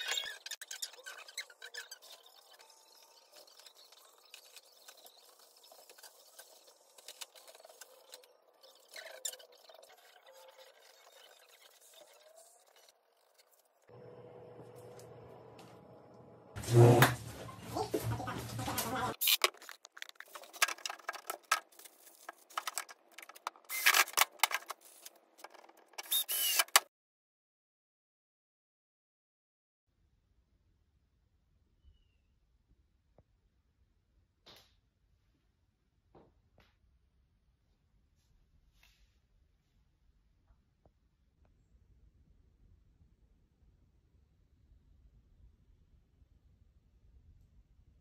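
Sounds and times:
scrape: 16.6s - 19.4s, 38.7s - 39.2s
cordless drill-driver whirring: 23.7s - 24.0s, 26.0s - 26.8s.

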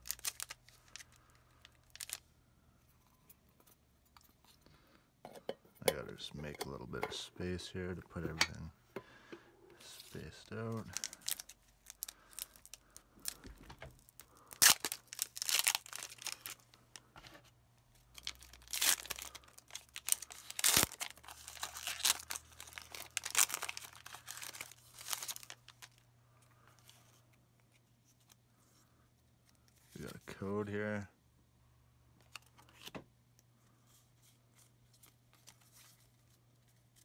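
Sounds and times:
foil wrapper tearing and crinkling: 0.0s - 2.2s, 10.2s - 16.7s, 18.1s - 26.0s.

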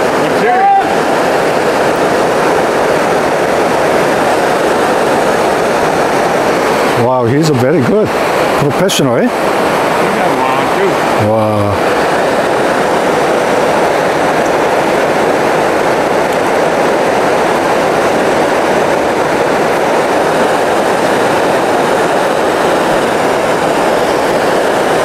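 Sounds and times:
river rushing over rapids: 0.0s - 25.0s.

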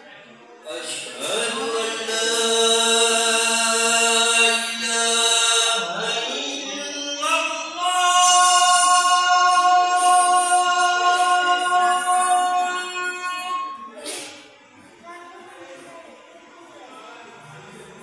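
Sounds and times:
person chanting: 0.7s - 14.0s.

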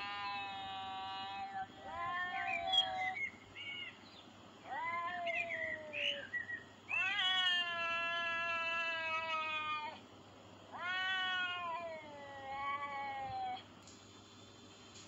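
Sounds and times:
cats yowling: 0.0s - 3.2s, 4.6s - 6.3s, 6.9s - 10.0s, 10.7s - 13.7s.

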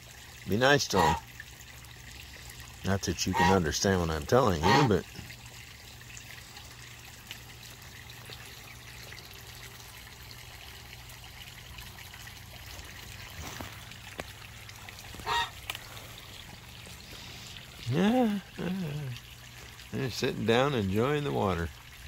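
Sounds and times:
water trickling: 0.0s - 22.0s
goose honk: 0.9s - 1.2s, 3.3s - 3.7s, 4.6s - 5.0s, 15.2s - 15.6s.

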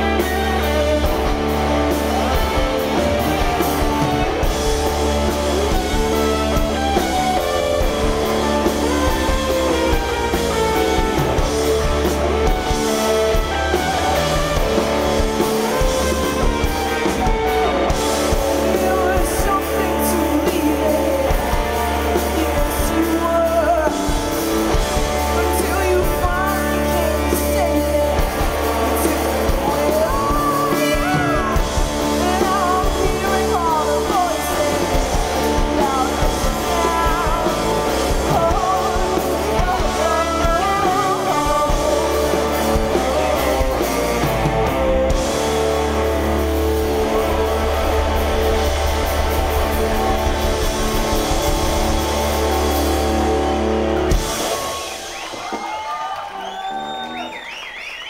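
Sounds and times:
lead vocals singing: 0.0s - 45.2s
live rock band playing: 0.0s - 58.0s.

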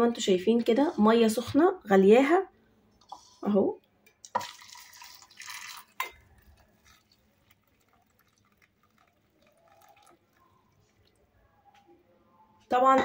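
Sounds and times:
water trickling and dripping: 4.2s - 11.5s
hot water pouring into bowl: 4.3s - 11.2s.

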